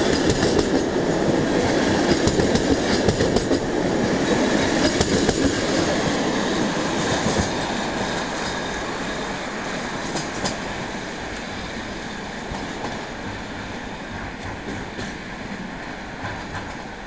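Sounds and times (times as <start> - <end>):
train wheels clacking over rail joints: 0.0 - 8.8, 10.0 - 11.6, 14.1 - 15.3, 16.2 - 17.0.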